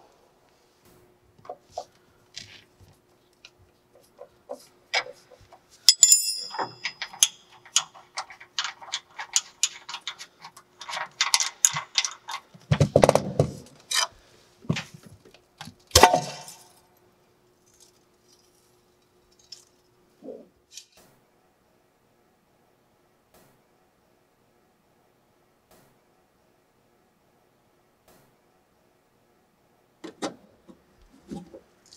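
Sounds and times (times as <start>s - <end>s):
metal tools clinking: 5.8s - 13.2s.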